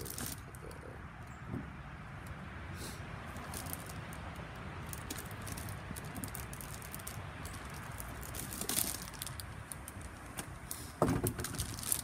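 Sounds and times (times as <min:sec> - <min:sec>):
plastic packaging rustling: 0:00.0 - 0:00.8, 0:03.3 - 0:12.0.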